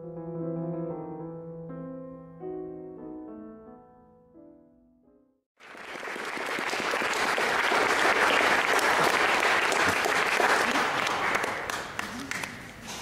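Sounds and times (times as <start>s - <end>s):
audience applauding: 5.6s - 12.8s.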